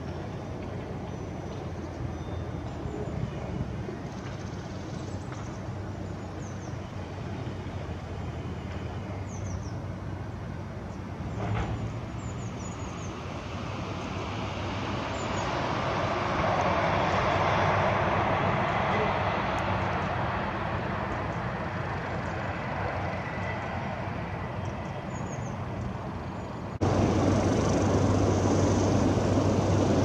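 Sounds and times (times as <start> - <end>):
distant traffic rumble: 0.0 - 30.0
vehicle passing: 13.6 - 24.6, 26.8 - 30.0.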